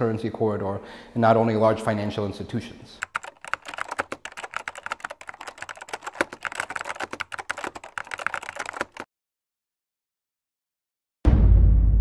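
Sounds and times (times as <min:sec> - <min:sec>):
keyboard key clicks: 0:03.0 - 0:09.1.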